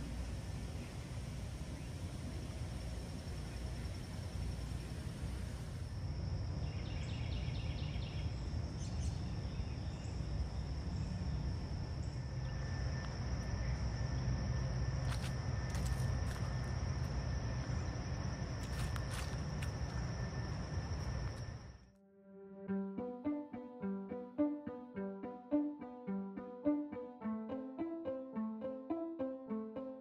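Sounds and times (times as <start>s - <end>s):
insects trilling: 0.0s - 21.8s.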